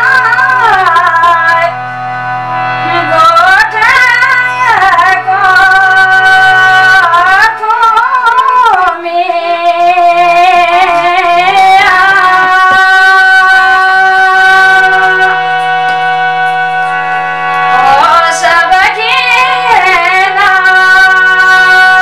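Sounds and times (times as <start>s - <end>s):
woman singing: 0.0s - 1.8s, 2.8s - 15.4s, 17.8s - 22.0s
low drone: 11.0s - 20.4s.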